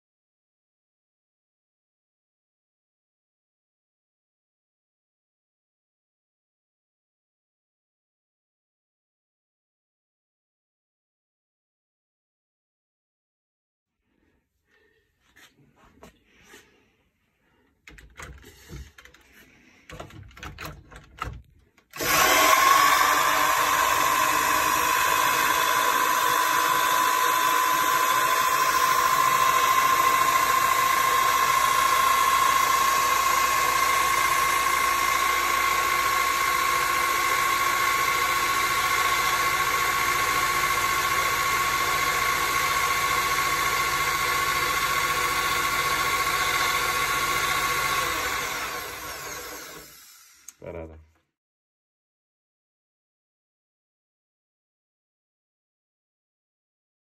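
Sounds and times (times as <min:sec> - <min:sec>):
electric drill whining: 0:21.7 - 0:50.6.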